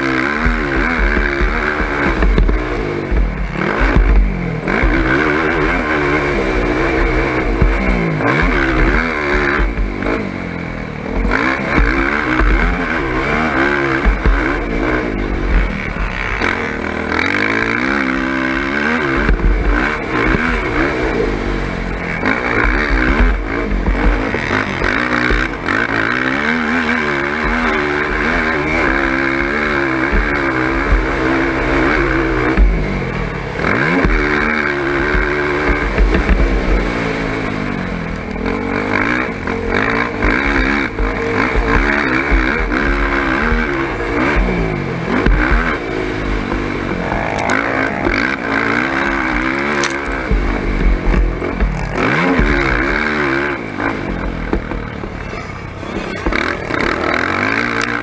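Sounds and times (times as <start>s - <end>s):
quad engine revving: 0.0s - 58.0s
low buffeting rumble: 45.9s - 52.0s.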